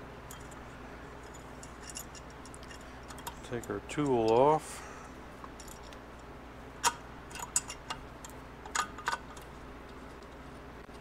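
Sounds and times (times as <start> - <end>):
sharp metal clicks and clinks: 1.2 - 4.6.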